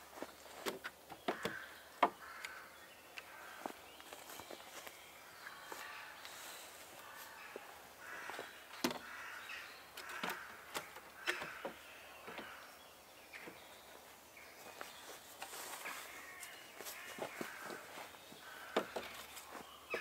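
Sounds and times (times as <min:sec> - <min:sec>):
wooden poles knocking: 0:00.2 - 0:02.6, 0:08.2 - 0:09.2, 0:10.0 - 0:12.6, 0:16.9 - 0:20.0
footsteps in leaf litter: 0:14.0 - 0:20.0
rustling in leaf litter: 0:14.6 - 0:18.3.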